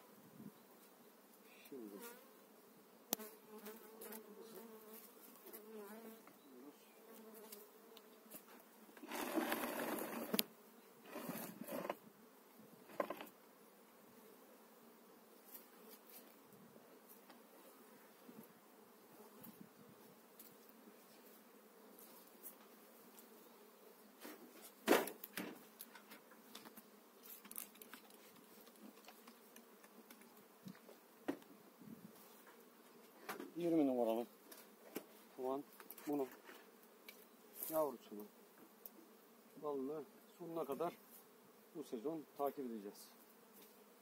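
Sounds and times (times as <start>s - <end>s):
honeybees buzzing: 0.1s - 44.0s
wooden hive parts scraping: 8.4s - 12.0s, 12.8s - 13.3s.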